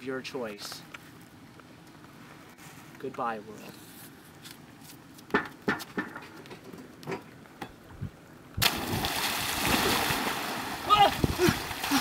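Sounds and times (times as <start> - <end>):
loud splash into water: 8.6 - 12.0.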